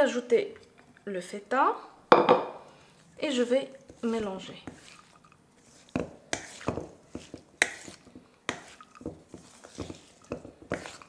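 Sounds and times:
spoon scraping through mixture: 0:02.7 - 0:11.0.

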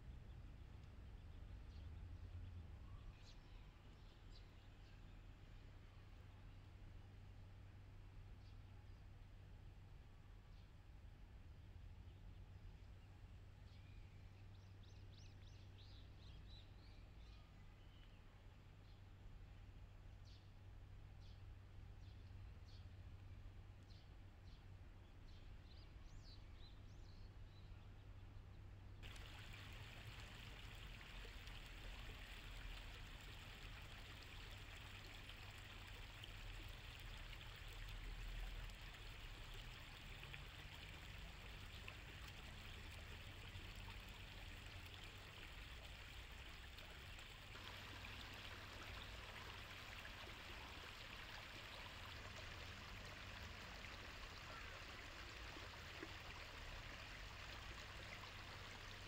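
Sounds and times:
low steady hum: 0:00.0 - 0:59.0
stream trickling over stones: 0:29.0 - 0:59.0.

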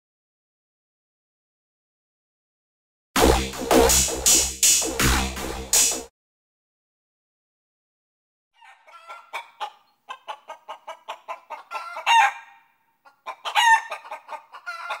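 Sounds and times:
fowl clucking: 0:08.6 - 0:15.0
fowl squawks: 0:08.6 - 0:15.0.

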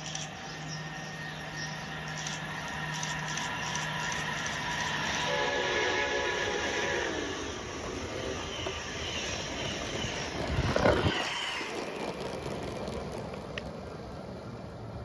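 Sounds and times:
toy train whirring on track: 0:00.0 - 0:13.7.

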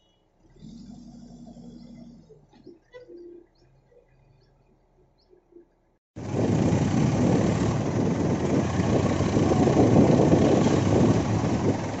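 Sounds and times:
diesel tractor engine running: 0:06.2 - 0:12.0.

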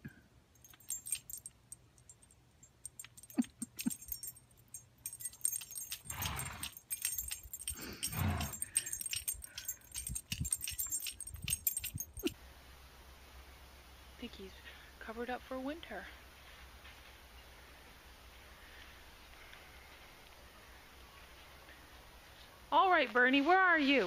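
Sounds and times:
dog collar tags jingling: 0:00.5 - 0:12.4.

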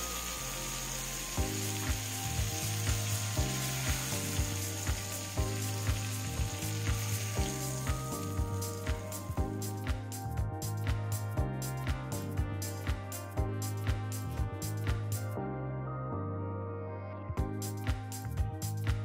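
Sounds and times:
fish sizzling in a frying pan: 0:00.0 - 0:09.9
background music with steady beat: 0:00.0 - 0:19.0.

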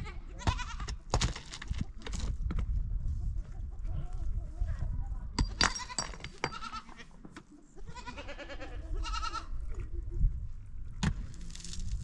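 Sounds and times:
livestock bleating: 0:07.8 - 0:09.5.

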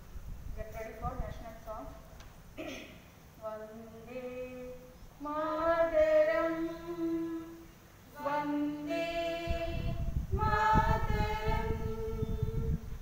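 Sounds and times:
low rumbling noise: 0:00.0 - 0:13.0
woman singing unaccompanied: 0:03.4 - 0:13.0.

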